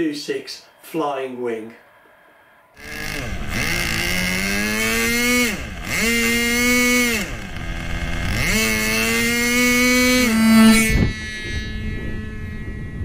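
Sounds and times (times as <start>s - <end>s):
model engine revving: 2.8s - 13.0s.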